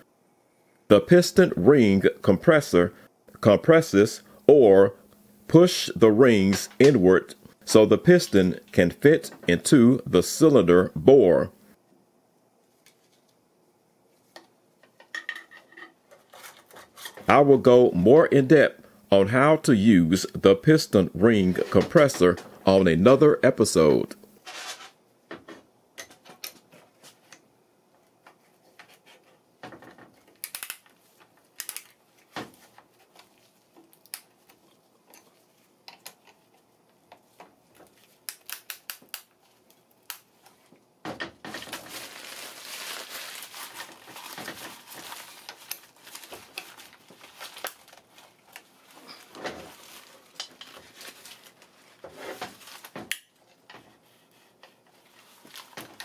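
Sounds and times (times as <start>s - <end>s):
steady rustling noise: 21.0s - 38.3s, 39.3s - 56.0s.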